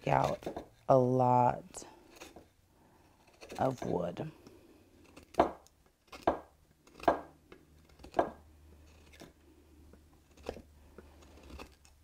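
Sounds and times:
knife cutting soft wood: 2.0s - 9.4s, 10.2s - 12.0s.

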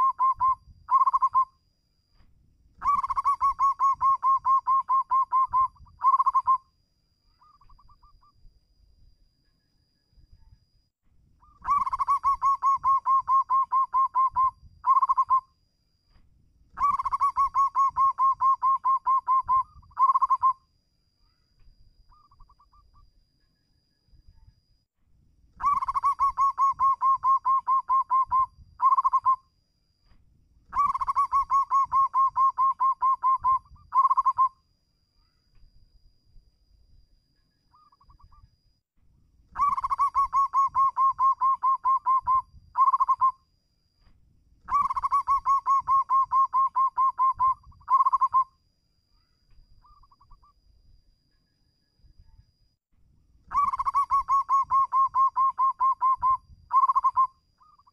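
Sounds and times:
dove cooing: 0.0s - 1.5s, 2.8s - 6.6s, 11.4s - 15.4s, 16.8s - 20.6s, 25.6s - 29.4s, 30.7s - 34.5s, 39.5s - 43.3s, 44.7s - 48.4s, 53.5s - 57.9s.

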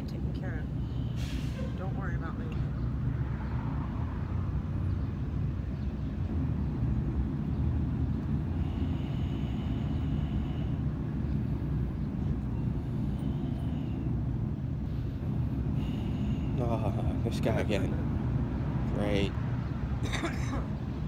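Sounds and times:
engine idling: 7.9s - 18.0s.

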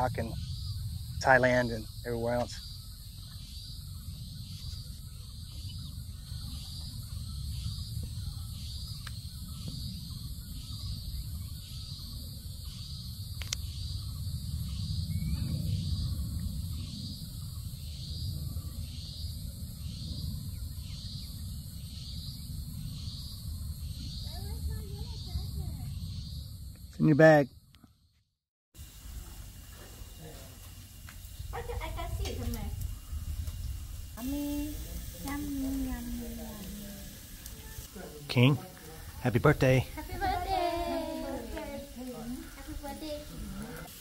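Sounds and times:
high-pitched insect hum: 0.0s - 28.2s, 28.8s - 44.0s
insects chirping: 0.0s - 28.2s, 28.8s - 44.0s
low rumble: 28.9s - 37.9s.

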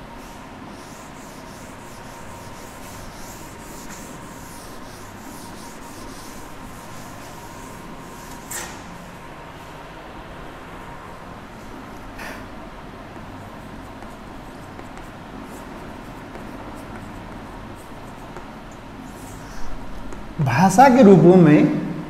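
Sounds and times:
scratchy handwriting: 0.2s - 8.5s, 13.2s - 20.3s.

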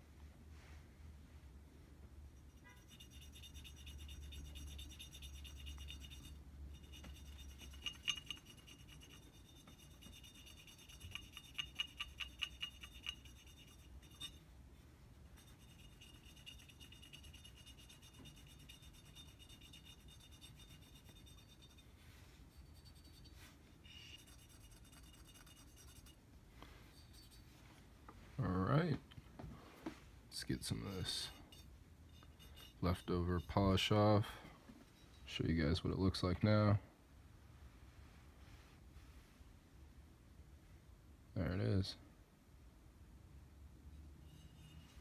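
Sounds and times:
cotton swab scrubbing metal: 2.5s - 14.5s, 15.2s - 26.2s, 30.4s - 33.8s.

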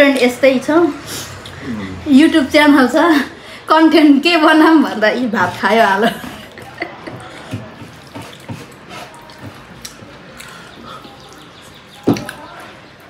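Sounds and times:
wet eating clicks and smacks: 6.4s - 13.0s.

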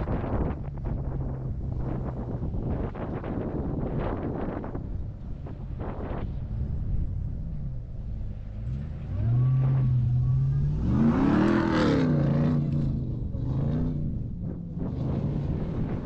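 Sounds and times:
truck engine revving: 8.1s - 16.0s.

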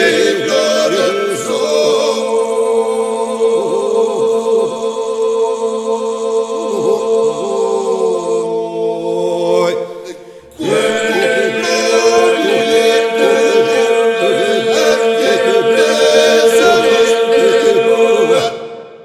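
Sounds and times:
men singing drone: 0.0s - 19.0s
lead voice singing ornamented melody: 9.6s - 18.7s.

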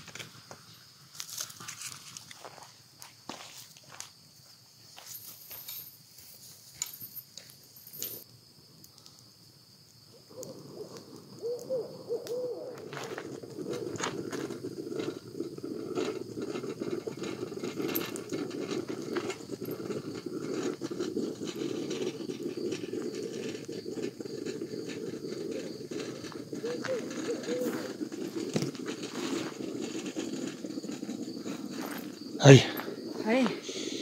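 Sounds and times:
clicks and crackles: 0.0s - 3.2s, 6.8s - 33.0s
chorus of wavering animal calls: 10.2s - 13.1s, 26.6s - 28.0s.

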